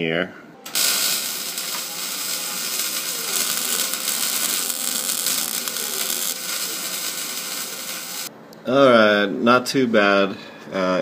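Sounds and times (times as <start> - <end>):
welding arc crackling: 0.7 - 8.3.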